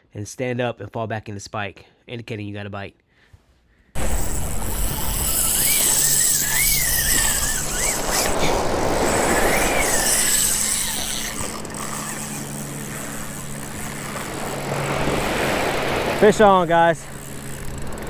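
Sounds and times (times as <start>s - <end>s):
wind noise: 4.0s - 12.2s
fishing reel drag whining: 4.0s - 18.0s
surf: 4.0s - 18.0s.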